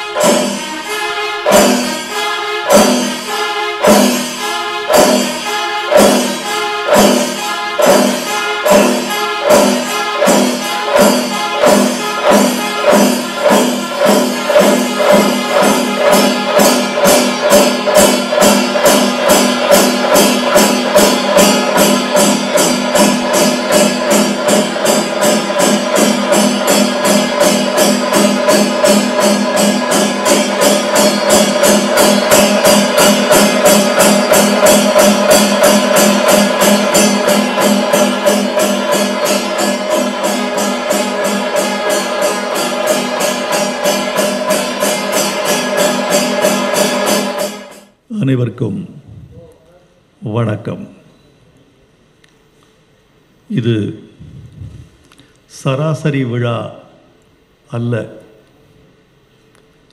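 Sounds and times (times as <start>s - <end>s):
horns holding sustained note: 0.0s - 47.8s
drums beaten in rhythm: 0.0s - 48.1s.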